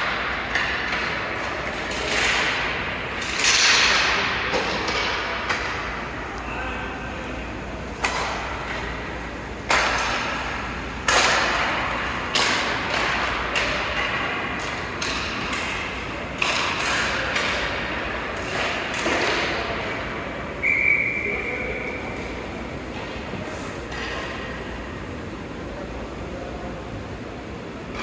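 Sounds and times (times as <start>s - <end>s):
hockey sticks and puck knocking: 0.0s - 6.0s, 8.0s - 20.1s, 22.9s - 24.7s.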